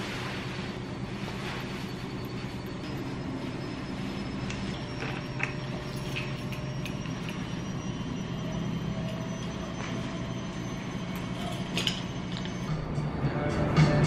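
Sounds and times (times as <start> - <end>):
clothing rustling: 0.0 - 6.8
washing machine humming: 0.0 - 14.0.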